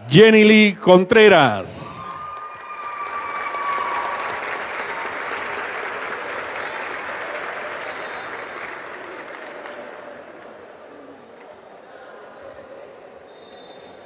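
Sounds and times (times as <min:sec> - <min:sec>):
crowd applauding: 0:01.4 - 0:11.6.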